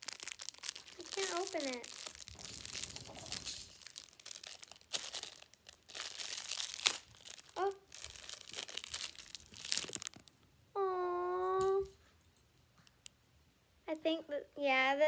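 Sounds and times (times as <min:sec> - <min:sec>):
wrapper crinkling and tearing: 0:00.0 - 0:10.4.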